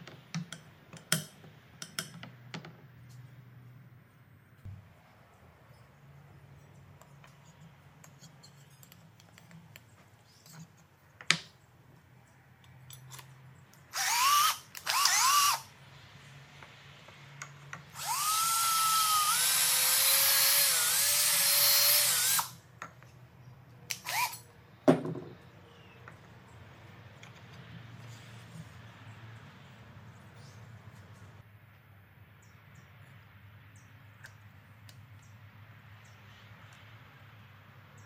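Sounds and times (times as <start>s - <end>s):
electric drill motor whining: 14.0s - 15.7s, 17.9s - 22.6s, 24.0s - 24.4s.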